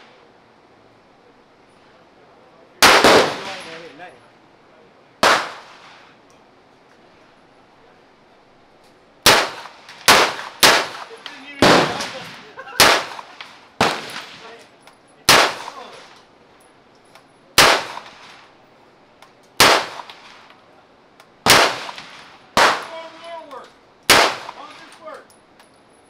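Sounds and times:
gunshots with echo: 0:02.8 - 0:03.8, 0:05.2 - 0:06.0, 0:09.2 - 0:14.6, 0:15.3 - 0:16.0, 0:17.6 - 0:18.3, 0:19.6 - 0:20.4, 0:21.5 - 0:23.2, 0:24.1 - 0:24.9.

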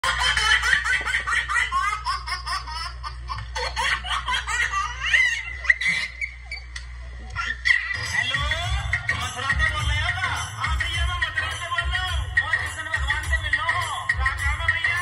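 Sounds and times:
man laughing theatrically: 0:00.0 - 0:05.6.

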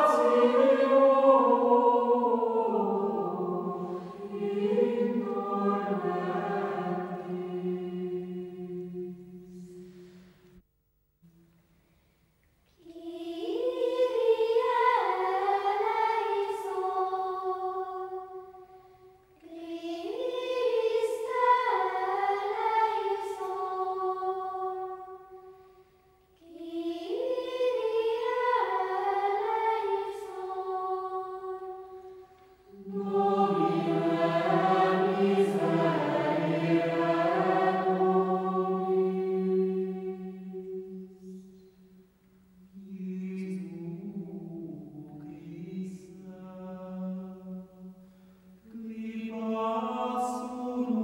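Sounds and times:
high voices singing: 0:00.0 - 0:10.5, 0:12.8 - 0:25.6, 0:26.4 - 0:42.0
lower voices singing: 0:00.0 - 0:10.5, 0:12.8 - 0:25.7, 0:26.4 - 0:42.0, 0:42.6 - 0:51.0.

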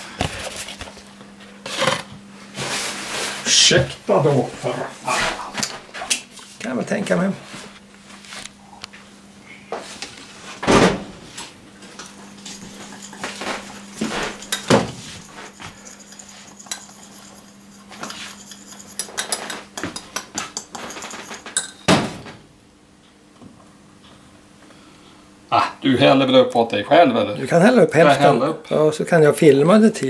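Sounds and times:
steady low hum: 0:00.0 - 0:29.6
crockery clinking on metal counter: 0:18.9 - 0:21.9.

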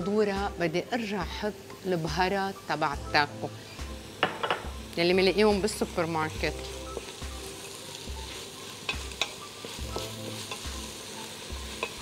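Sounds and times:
meat and vegetables sizzling: 0:00.0 - 0:12.0
spoon knocking against pot: 0:04.2 - 0:04.7.

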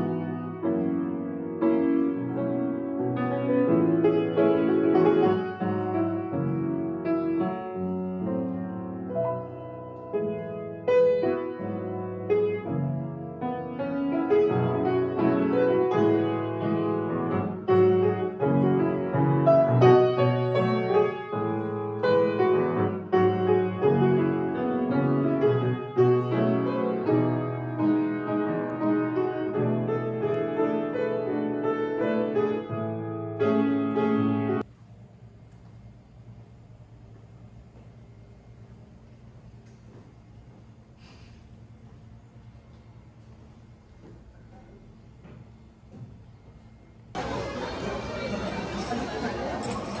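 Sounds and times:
solo piano music: 0:00.0 - 0:34.6.

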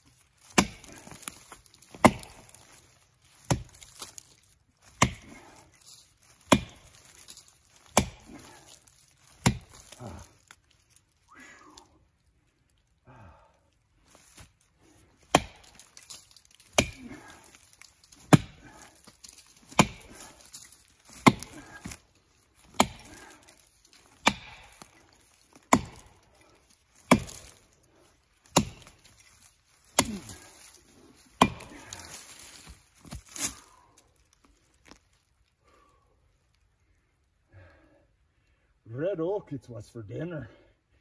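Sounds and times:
axe chopping a tree trunk: 0:00.4 - 0:10.5, 0:15.2 - 0:22.0, 0:22.6 - 0:27.6, 0:28.4 - 0:33.7.

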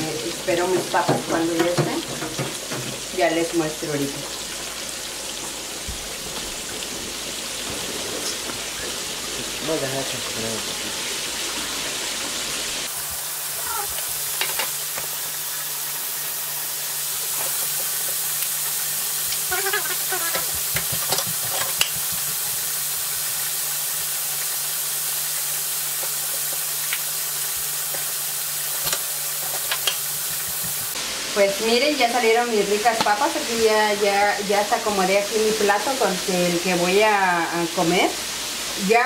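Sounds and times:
hot oil sizzling in a fryer: 0:00.0 - 0:39.0
oil pops and crackles: 0:19.2 - 0:22.6, 0:25.9 - 0:27.1, 0:27.8 - 0:31.0.

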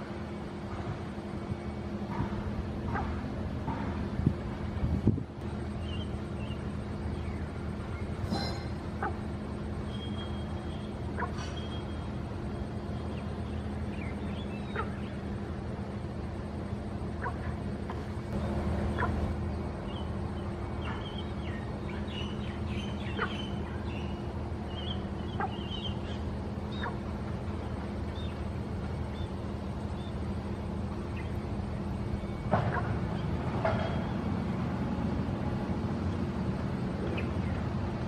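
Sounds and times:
low background hum: 0:00.0 - 0:38.0
short bird calls and peeps: 0:19.8 - 0:27.0.

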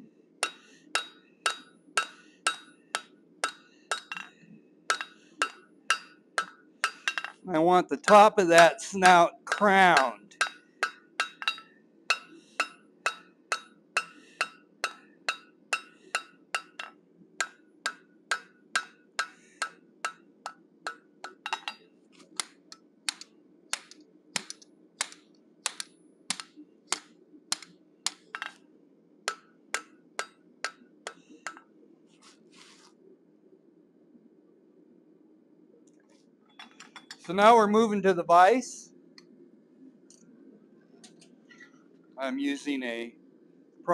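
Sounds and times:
hammer striking steel on anvil: 0:00.4 - 0:04.3, 0:04.9 - 0:07.4, 0:08.0 - 0:21.8, 0:23.8 - 0:28.6, 0:29.3 - 0:31.6.

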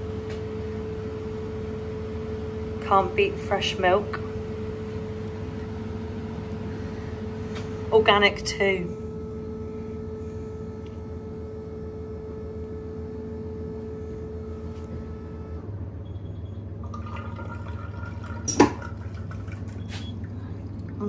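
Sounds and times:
vending machine hum: 0:00.0 - 0:21.0
milk pouring into glass bottle: 0:16.9 - 0:21.0.

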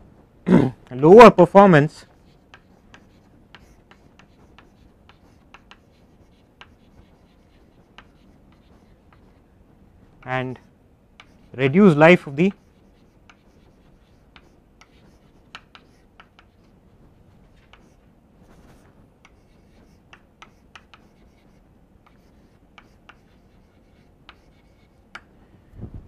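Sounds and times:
chalk scratching: 0:02.0 - 0:09.4, 0:10.5 - 0:25.2
chalk tapping on blackboard: 0:02.1 - 0:09.4, 0:10.5 - 0:11.5, 0:12.4 - 0:16.7, 0:17.5 - 0:25.3.

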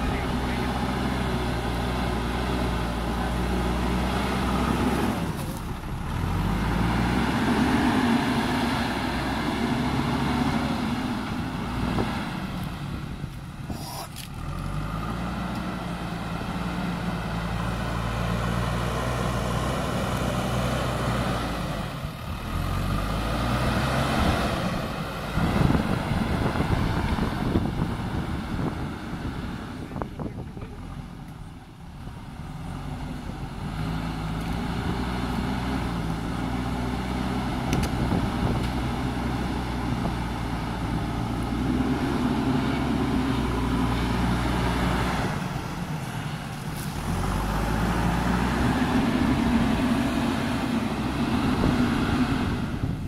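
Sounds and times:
diesel engine revving under load: 0:00.0 - 0:53.0.

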